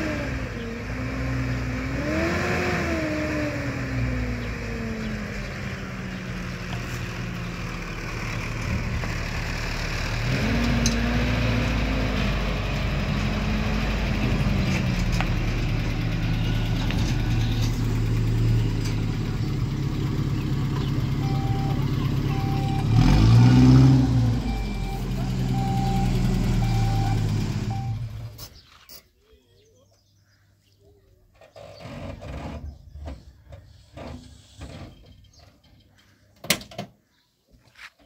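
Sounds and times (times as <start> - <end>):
vehicle engine revving: 0.0 - 28.6
short beeps: 21.2 - 22.9, 24.4 - 28.1.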